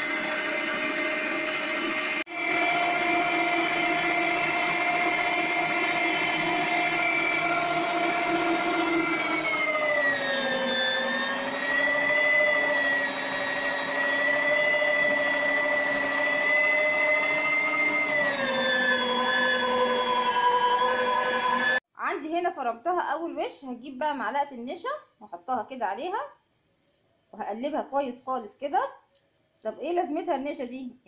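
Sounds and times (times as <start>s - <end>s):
electric meat grinder whine: 0.0s - 21.8s.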